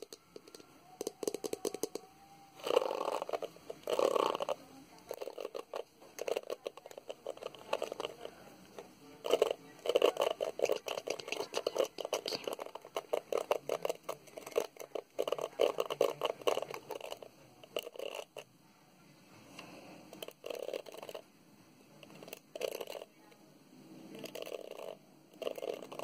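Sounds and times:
fingernails scratching hairbrush pins: 2.6s - 8.3s, 9.2s - 18.4s, 22.0s - 23.0s, 24.2s - 26.0s.

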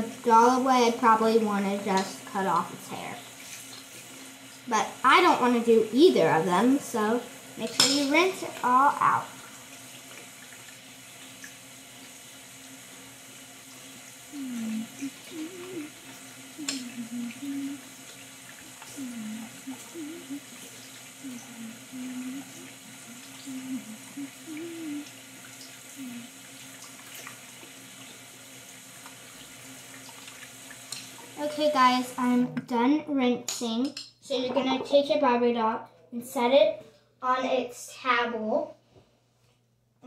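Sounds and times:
faucet running: 0.0s - 32.5s
person humming: 14.3s - 17.9s, 18.9s - 25.2s, 25.9s - 26.4s.

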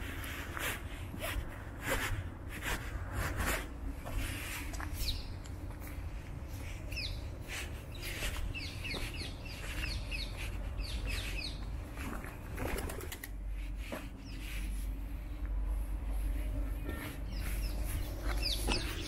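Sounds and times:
small birds chirping: 4.6s - 12.8s, 13.9s - 15.0s, 16.7s - 19.0s.

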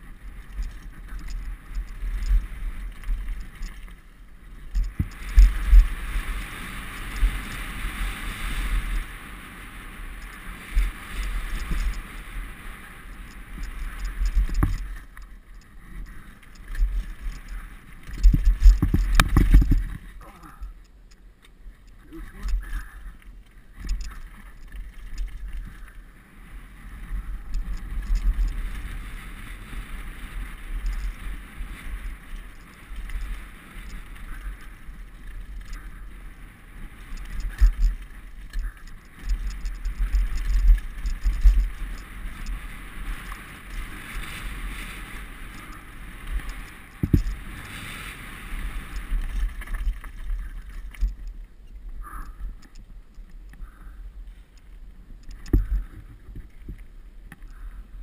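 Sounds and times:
bike rattling: 0.0s - 58.0s
wind buffeting microphone: 21.8s - 54.2s.

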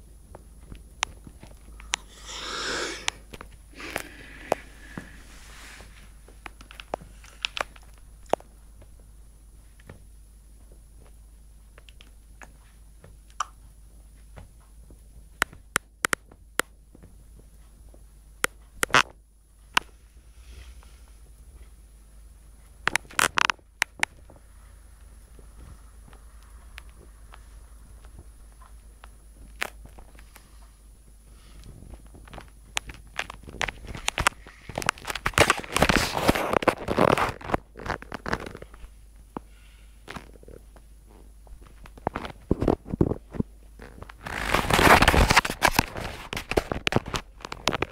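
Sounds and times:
low steady hum: 0.0s - 47.9s
microphone handling noise: 31.6s - 39.4s, 40.0s - 47.9s.

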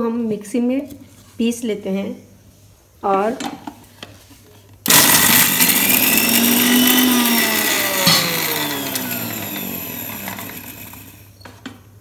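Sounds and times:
mixer grinder motor whine: 4.9s - 11.3s.

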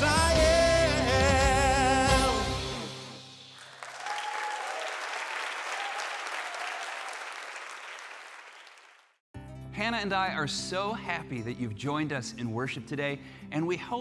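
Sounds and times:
singer and band: 0.0s - 3.2s
audience applause: 3.5s - 9.2s.

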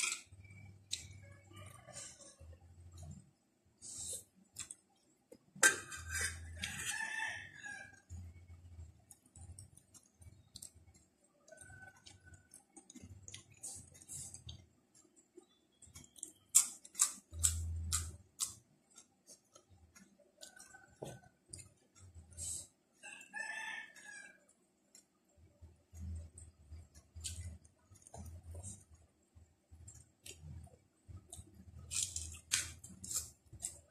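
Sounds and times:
rooster crowing: 1.4s - 2.4s, 6.6s - 8.1s, 23.0s - 24.4s
chewing raw leaves: 15.4s - 22.4s, 29.7s - 33.9s.

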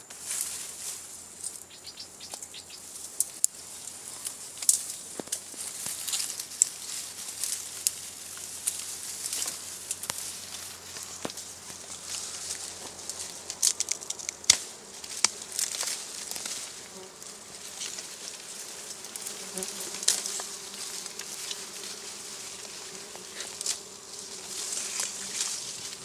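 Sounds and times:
reed stems rustling and snapping: 0.0s - 26.0s
bees buzzing: 1.1s - 26.0s.

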